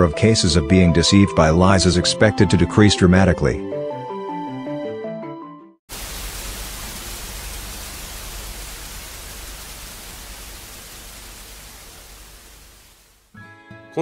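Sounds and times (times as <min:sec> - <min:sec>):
soft background music: 0:00.0 - 0:05.1
static noise hiss: 0:05.9 - 0:13.3.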